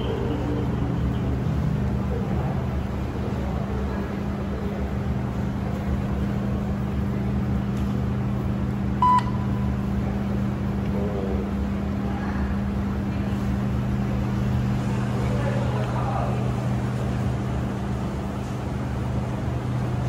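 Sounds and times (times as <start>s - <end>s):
low hum of laundry machines: 0.0s - 20.0s
short electronic beep: 9.0s - 9.5s.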